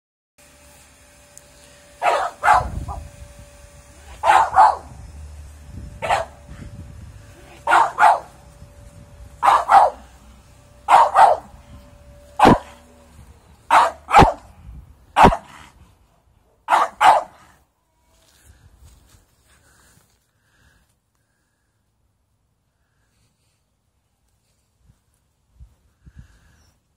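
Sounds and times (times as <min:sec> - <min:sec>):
dog barking: 0:02.0 - 0:02.8, 0:04.2 - 0:04.9, 0:06.0 - 0:06.4, 0:07.5 - 0:08.3, 0:09.4 - 0:10.0, 0:10.9 - 0:11.5, 0:12.4 - 0:12.8, 0:13.7 - 0:14.5, 0:15.2 - 0:15.6, 0:16.5 - 0:17.5.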